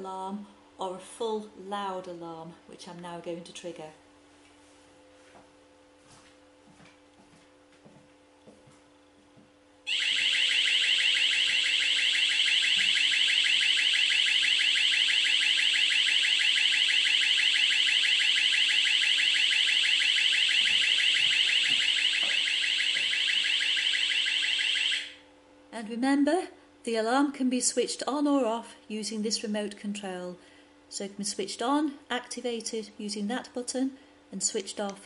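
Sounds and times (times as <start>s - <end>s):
shrill electronic alarm siren: 9.9s - 25.2s.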